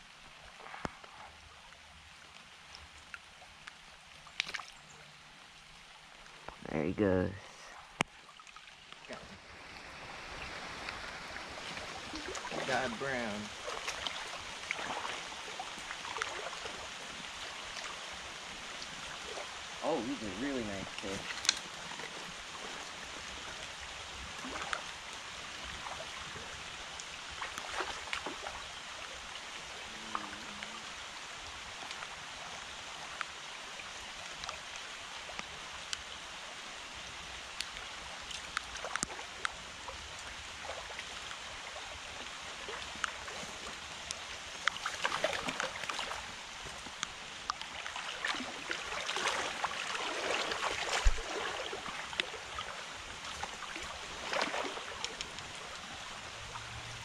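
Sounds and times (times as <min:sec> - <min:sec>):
small splashes and ticks: 0:00.0 - 0:06.6, 0:07.6 - 0:57.0
creek water rushing: 0:00.0 - 0:57.0
legs in waders splashing: 0:04.3 - 0:04.9, 0:07.8 - 0:18.1, 0:27.3 - 0:28.8, 0:38.2 - 0:56.9.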